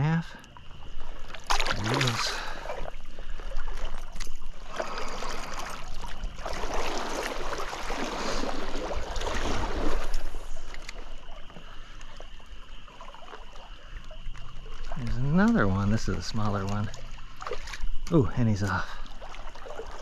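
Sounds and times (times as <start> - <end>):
water splashing and sloshing: 0.0 - 20.0.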